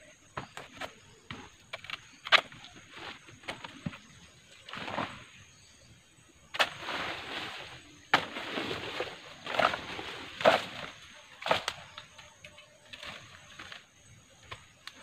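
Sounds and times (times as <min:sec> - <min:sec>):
machete chopping brush: 0:06.5 - 0:12.0
leaves rustling: 0:06.6 - 0:12.2.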